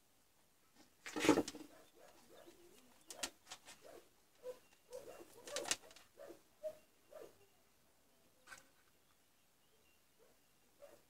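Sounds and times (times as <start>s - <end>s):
bird cooing: 1.8s - 3.3s, 3.9s - 7.6s.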